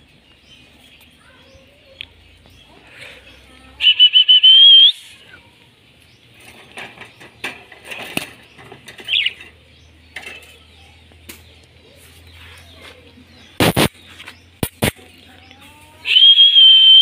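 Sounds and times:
parrot whistling call: 0:03.8 - 0:05.0, 0:16.1 - 0:17.0.

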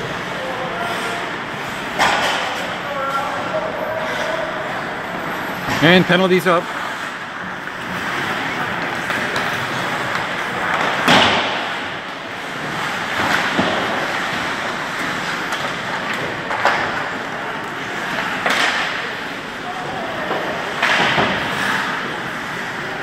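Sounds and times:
stick and puck knocking boards: 0:02.0 - 0:02.6, 0:08.8 - 0:17.2, 0:18.1 - 0:19.0, 0:20.3 - 0:21.7.

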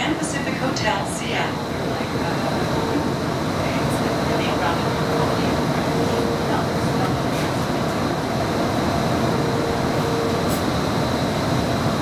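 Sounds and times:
streetcar wheels rumbling on rails: 0:00.0 - 0:12.0.

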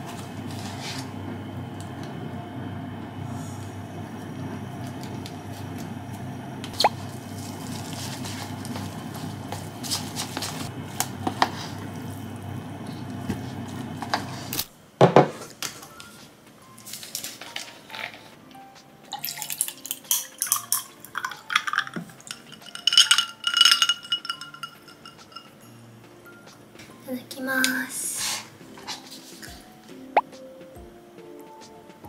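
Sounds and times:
juice pouring into glass: 0:19.1 - 0:24.8.

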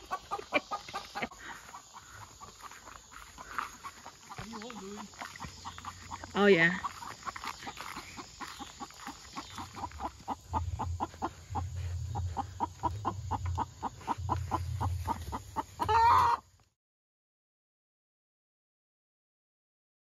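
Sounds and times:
hens clucking: 0:00.0 - 0:16.5
hen call: 0:08.8 - 0:16.4.

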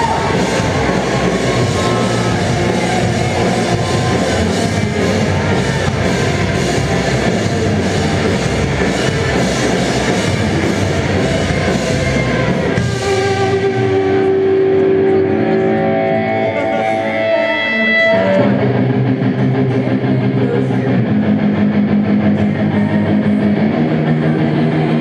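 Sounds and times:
drum kit: 0:00.0 - 0:15.3
distorted electric guitars: 0:00.0 - 0:25.0
rock band playing live: 0:00.0 - 0:25.0.

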